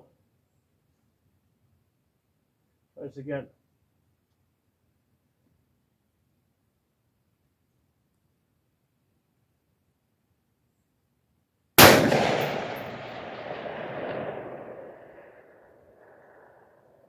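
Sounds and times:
rifle shot with rolling echo: 0:11.8 - 0:17.0.

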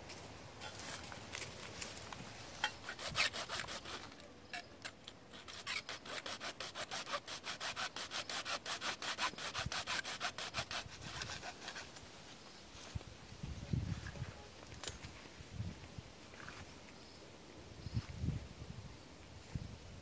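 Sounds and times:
hand saw sawing: 0:02.6 - 0:04.2, 0:05.3 - 0:11.9.

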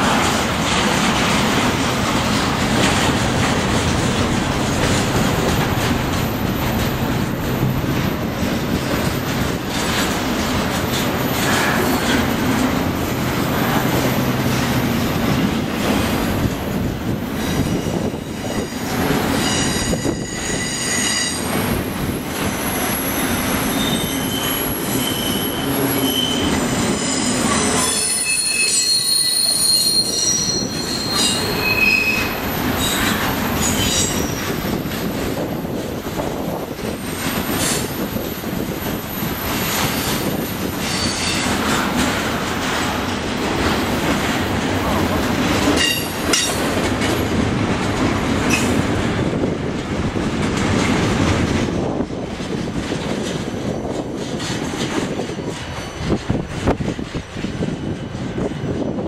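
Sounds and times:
freight train rumble and clatter: 0:00.0 - 0:59.0
steel wheel squeal: 0:17.4 - 0:21.5, 0:22.6 - 0:34.6, 0:37.4 - 0:41.5.

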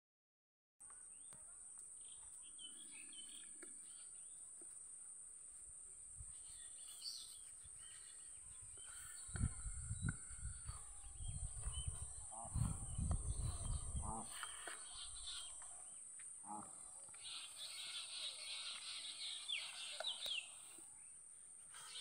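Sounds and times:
small birds chirping: 0:00.8 - 0:05.1, 0:06.2 - 0:22.0
high insect drone: 0:00.8 - 0:22.0
low rumbling on microphone: 0:09.3 - 0:14.4.

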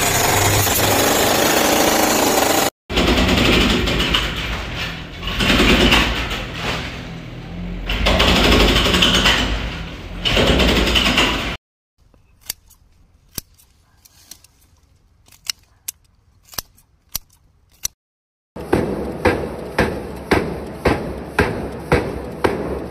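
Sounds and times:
hydraulic breaker hammering wall: 0:00.0 - 0:11.6, 0:18.6 - 0:22.9
scissors snipping stalks: 0:12.0 - 0:18.0.

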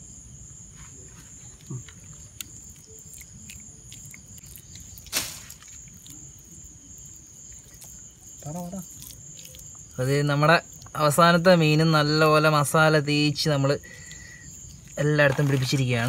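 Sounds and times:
crickets trilling: 0:00.0 - 0:16.0
wet squishing of hands: 0:07.4 - 0:10.0.

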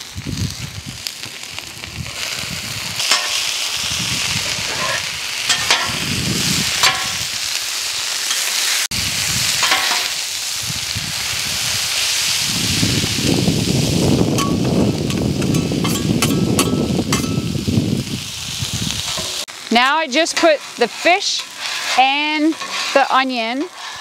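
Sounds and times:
food sizzling on griddle: 0:00.0 - 0:24.0
metal spatulas scraping steel: 0:03.0 - 0:03.5, 0:04.5 - 0:06.0, 0:15.4 - 0:17.4, 0:20.1 - 0:24.0
spatulas clinking: 0:03.1 - 0:03.4, 0:04.7 - 0:06.0, 0:06.8 - 0:07.2, 0:09.6 - 0:10.1, 0:14.4 - 0:17.5, 0:20.2 - 0:24.0.

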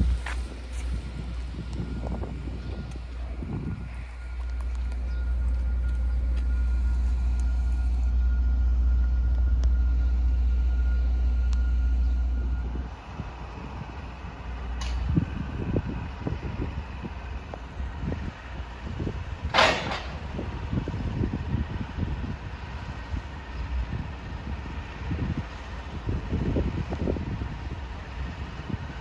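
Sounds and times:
faint steady whine: 0:00.0 - 0:15.9
wind buffeting microphone: 0:00.0 - 0:29.0.

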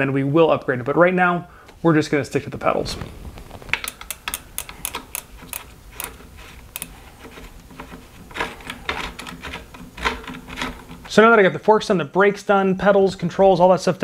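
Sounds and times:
wrench clicking and rattling: 0:03.8 - 0:11.1.

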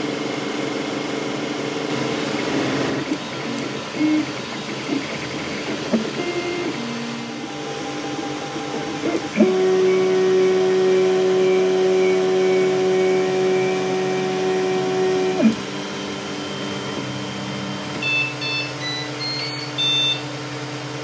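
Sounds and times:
stepper motors whining: 0:01.7 - 0:20.4
short high beeps: 0:18.0 - 0:20.2.

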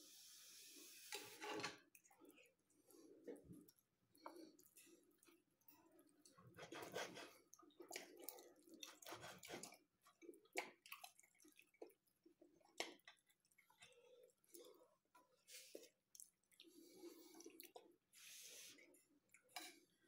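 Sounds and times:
knife scraping through pizza: 0:06.6 - 0:07.4, 0:09.0 - 0:09.7.

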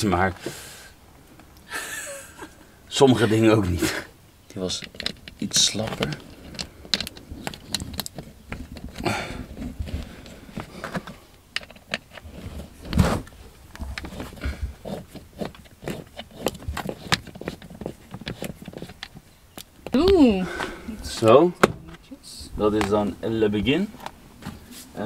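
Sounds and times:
rustling scrape: 0:12.0 - 0:19.2, 0:24.4 - 0:25.0.

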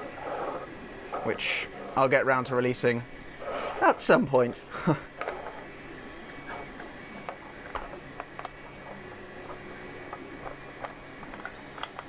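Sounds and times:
plastic spool clicking and knocking: 0:09.4 - 0:12.0.

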